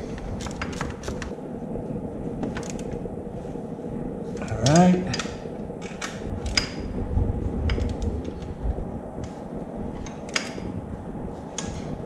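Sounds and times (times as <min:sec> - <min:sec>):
fumbling handling noise: 0:00.0 - 0:01.4.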